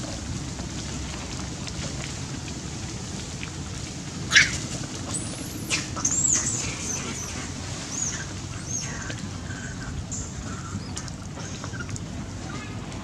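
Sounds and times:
macaques squealing: 4.3 - 11.9.

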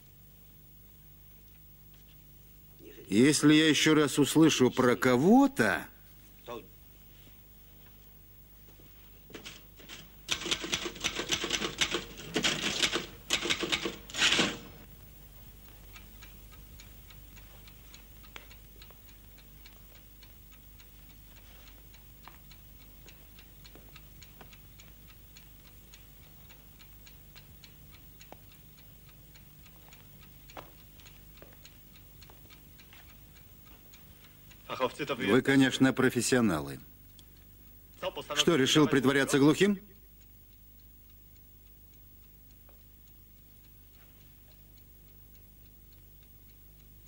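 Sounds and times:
clock ticking: 2.8 - 6.0, 9.4 - 47.0
loud rapid clattering: 9.4 - 14.8.

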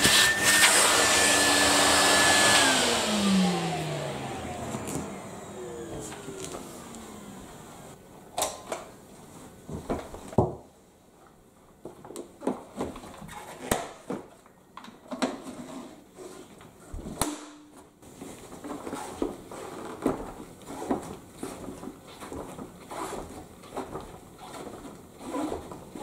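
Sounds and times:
rubbing and handling noises: 18.0 - 26.0.

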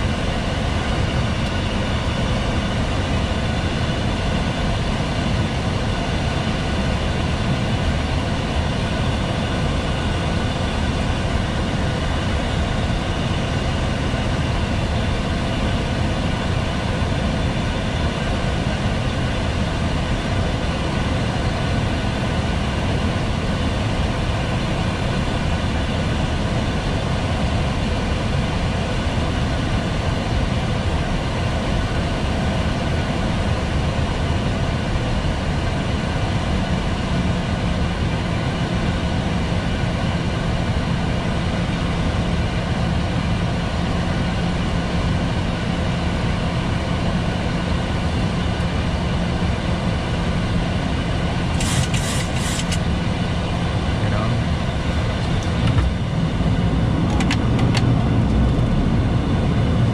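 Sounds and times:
airflow and engine hum: 0.0 - 59.9
steady low hum: 0.0 - 59.9
hiss: 51.6 - 52.8.

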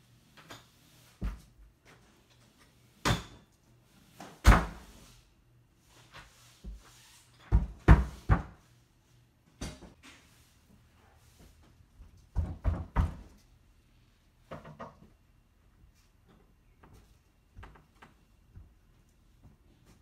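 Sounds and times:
knocks and thuds in a room: 7.5 - 8.7, 12.0 - 13.5, 14.4 - 15.2, 16.8 - 20.0.

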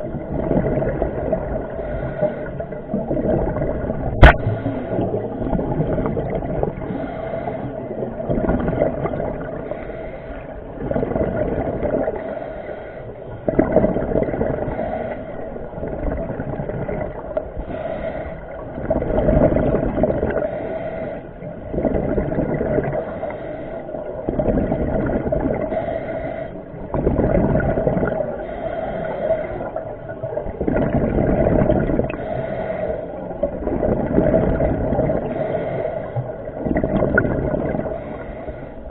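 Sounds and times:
bubbling water rush: 0.0 - 38.9
steady hum: 0.0 - 38.9.

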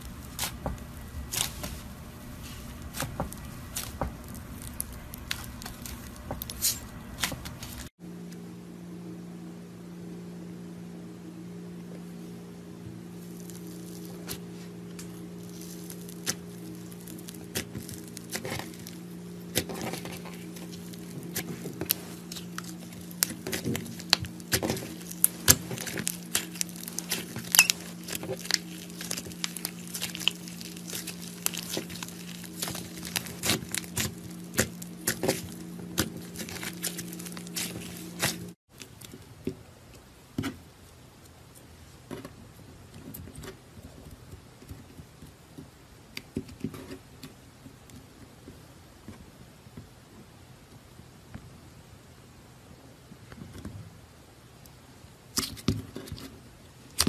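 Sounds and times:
low steady hum: 0.0 - 57.0
slime popping and crackling: 2.8 - 7.9, 15.4 - 38.6.

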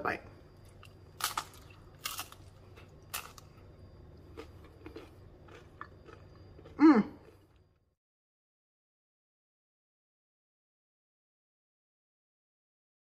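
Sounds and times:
chewing crunching: 0.6 - 7.8
crunchy shell bitten: 0.6 - 7.8.

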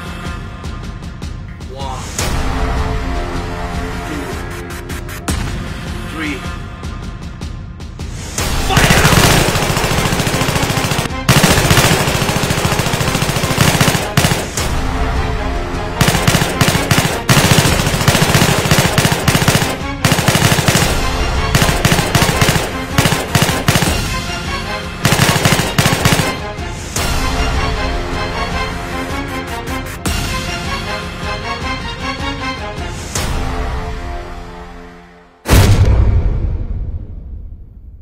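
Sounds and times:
automatic gunfire bursts: 8.7 - 14.7, 16.0 - 24.2, 25.0 - 26.4.

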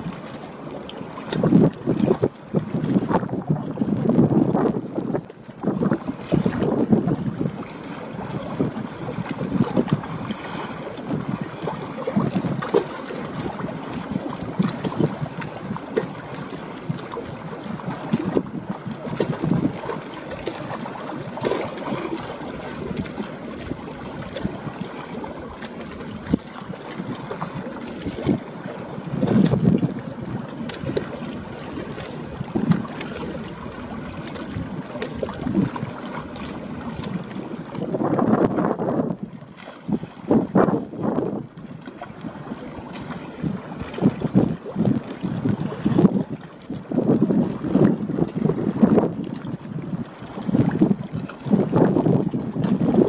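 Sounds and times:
rushing water: 0.0 - 53.0
wind buffeting microphone: 1.1 - 53.0.

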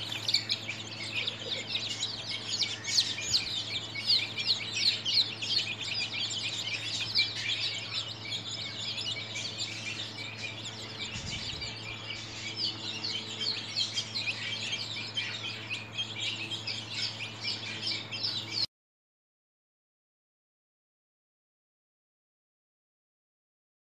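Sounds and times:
chicks peeping: 0.0 - 18.7.

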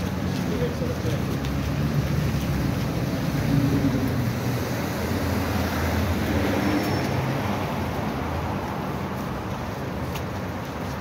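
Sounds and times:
city street traffic: 0.0 - 11.0.

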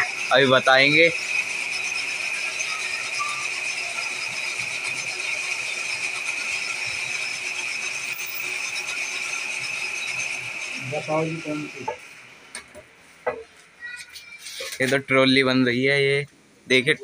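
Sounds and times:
metal lathe whining: 0.0 - 13.4.

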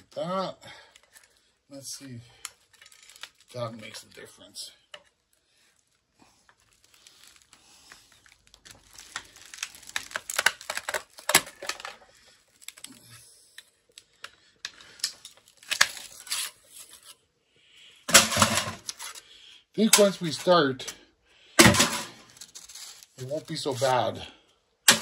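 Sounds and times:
tape tearing and crackling: 2.4 - 4.2, 5.2 - 17.2, 18.1 - 19.2, 21.6 - 24.1.

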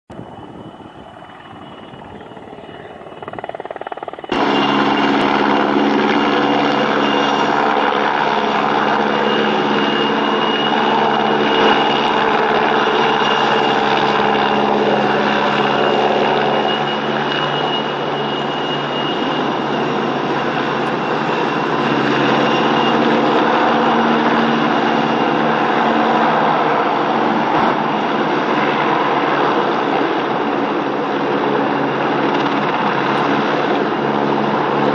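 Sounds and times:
helicopter rotor and engine noise: 0.1 - 34.9
high turbine whine: 0.1 - 34.9.

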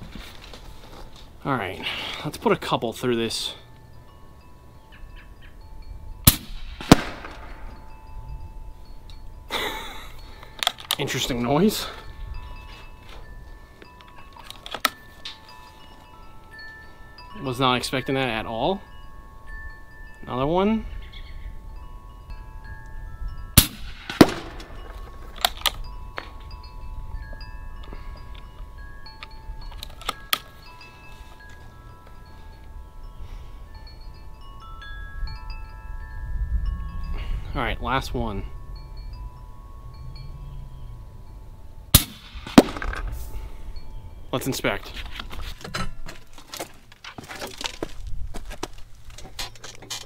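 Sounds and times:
wind chimes ringing: 0.0 - 50.0
air rifle sharp cracks: 6.3 - 7.6, 23.6 - 24.7, 42.0 - 43.0.

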